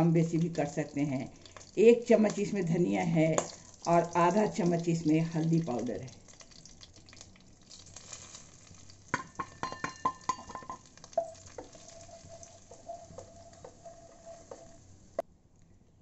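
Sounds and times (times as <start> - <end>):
spices sizzling in oil: 0.0 - 15.2
spatula scraping steel plate: 11.2 - 15.0.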